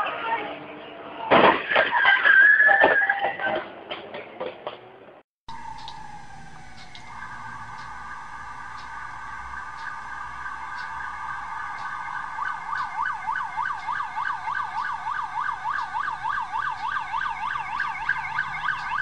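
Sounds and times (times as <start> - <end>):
police siren: 5.5 - 19.0.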